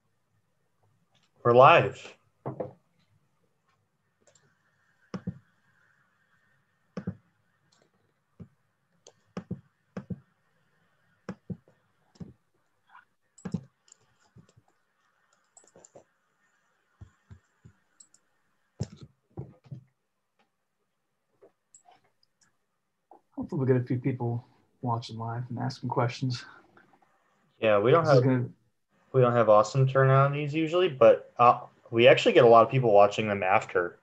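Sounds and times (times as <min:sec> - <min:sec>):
computer mouse clicks: 0:04.2 - 0:05.5, 0:13.4 - 0:19.8.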